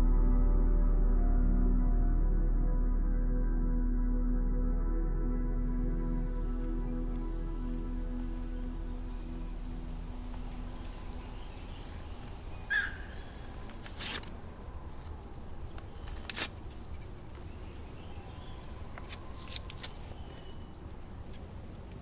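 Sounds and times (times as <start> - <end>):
low steady rumble: 0.0 - 12.5
small bird chirps: 10.0 - 13.8.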